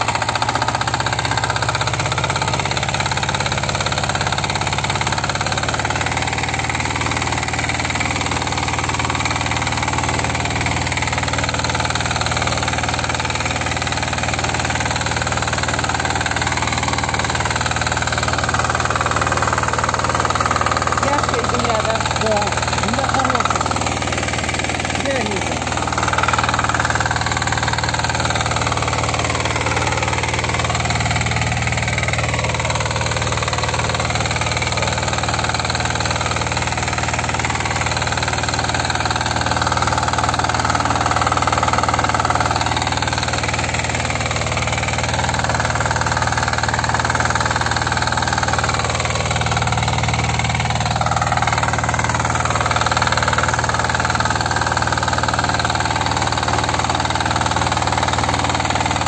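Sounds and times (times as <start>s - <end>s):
walk-behind tractor engine running: 0.0s - 59.0s.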